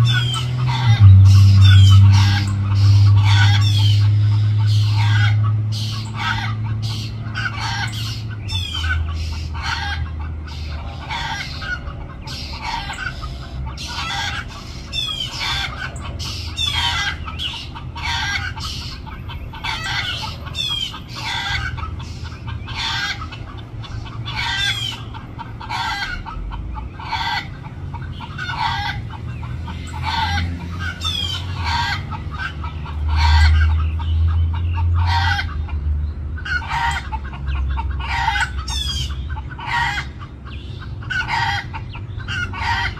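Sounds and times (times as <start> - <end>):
chickens clucking: 0.0 - 42.9.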